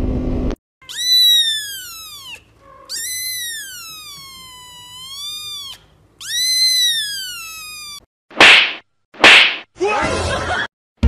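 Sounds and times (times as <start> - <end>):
kitten meowing: 0.8 - 8.0.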